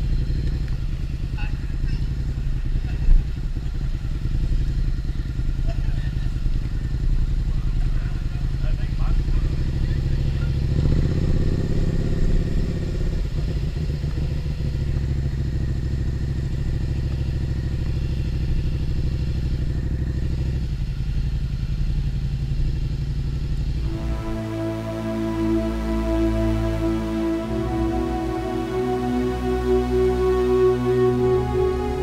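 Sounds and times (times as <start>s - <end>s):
motorcycle engine at low speed: 0.0s - 24.4s.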